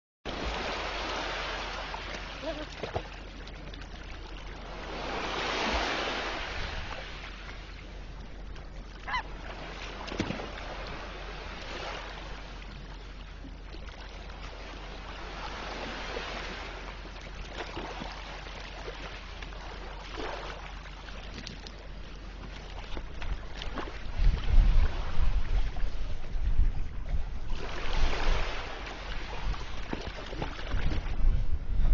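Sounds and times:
sea surf washing against ice: 0.3 - 2.9, 4.6 - 7.5.

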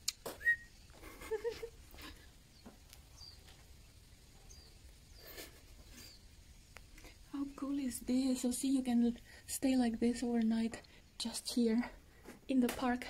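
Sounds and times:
faint high bird chirps: 0.4 - 1.0, 2.5 - 6.3.

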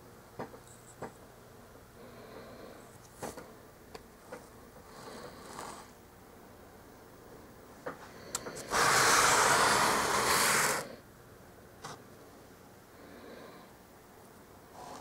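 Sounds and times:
torch flame hissing: 8.7 - 11.0.

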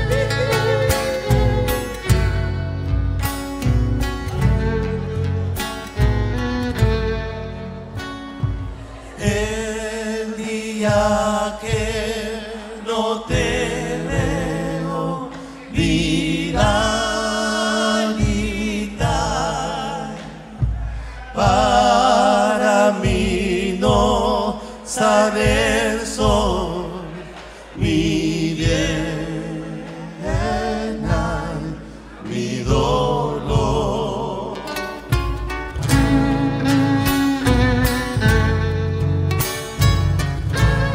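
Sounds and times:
acoustic guitars: 0.0 - 40.9
drums: 0.0 - 40.9
men singing together: 9.0 - 35.1.

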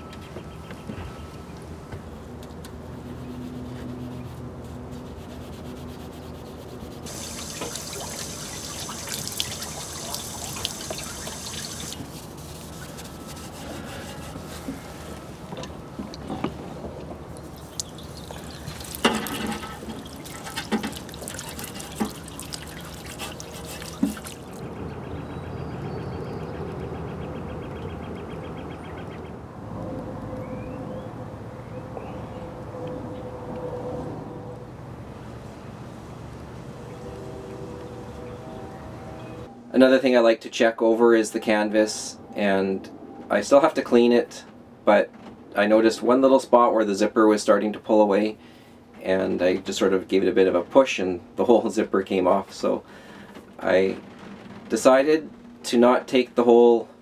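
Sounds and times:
hose water splashing on metal: 6.9 - 14.6, 17.3 - 24.6
knocks and clanks on metal: 19.0 - 21.0.

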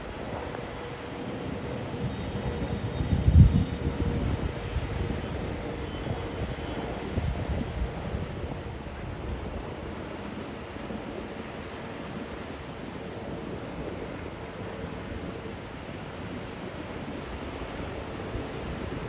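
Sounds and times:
wind on microphone: 0.0 - 19.0
sea water rushing: 4.0 - 19.0.

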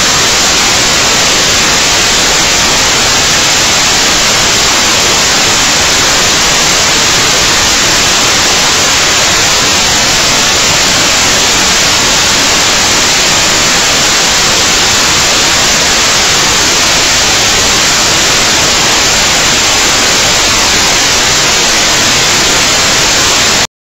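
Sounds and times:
loud static hiss: 0.0 - 23.7.

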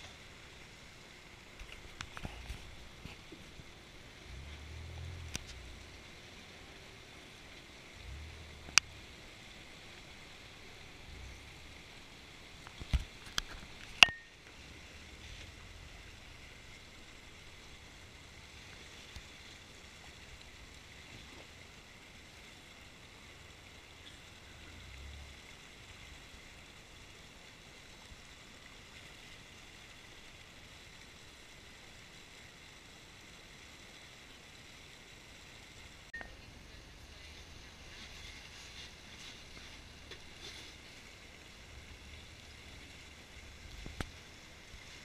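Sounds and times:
faint creek rushing: 0.0 - 45.0
low rumble: 2.4 - 6.2.

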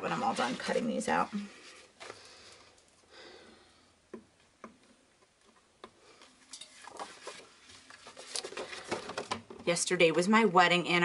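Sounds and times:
paper rustling and crinkling: 6.2 - 9.4.

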